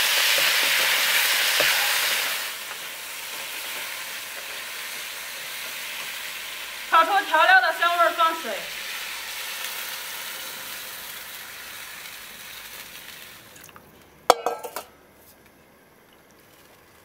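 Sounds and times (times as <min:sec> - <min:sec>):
chicken sizzling in a wok: 0:00.0 - 0:13.6
water poured into hot wok: 0:08.7 - 0:13.8
cookware clattering: 0:14.3 - 0:15.0.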